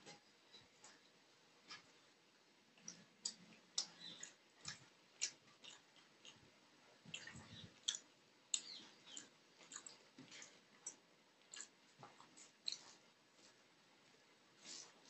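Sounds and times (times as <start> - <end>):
chewing: 2.8 - 13.6
mouth clicks: 7.1 - 10.0.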